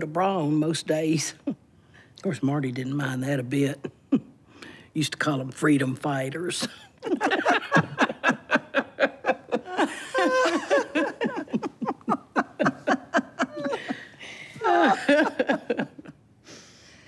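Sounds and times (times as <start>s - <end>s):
women laughing: 6.9s - 16.2s.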